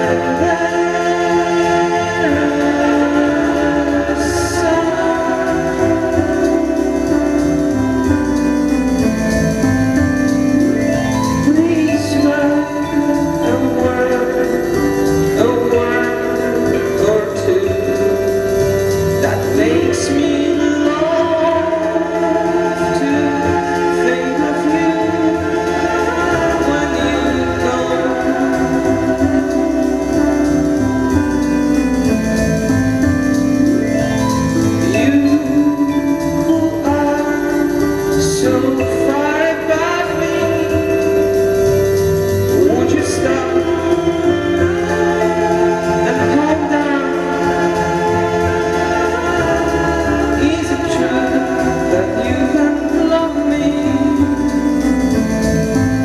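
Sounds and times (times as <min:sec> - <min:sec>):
electronic music with held notes: 0:00.0 - 0:56.0
person singing: 0:00.0 - 0:56.0.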